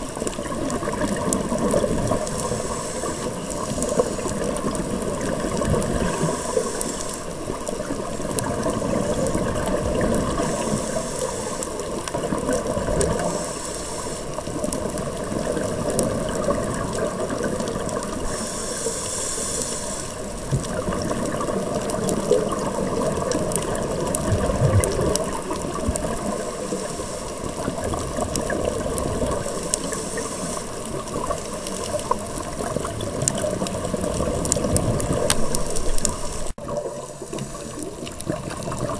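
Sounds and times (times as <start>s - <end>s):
bubbling exhalations: 0.0s - 13.5s, 20.2s - 26.9s
constant crackling: 0.0s - 38.9s
regulator hissing inhalation: 2.2s - 4.3s, 6.1s - 7.3s, 10.4s - 11.9s, 13.2s - 14.4s, 18.2s - 20.3s, 26.3s - 27.5s, 29.7s - 30.8s.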